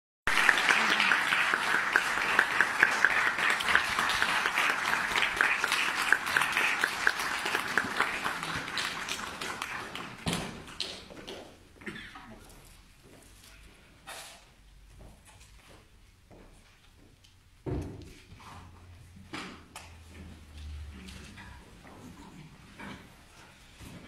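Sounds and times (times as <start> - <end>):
audience applauding: 0.2 - 10.9.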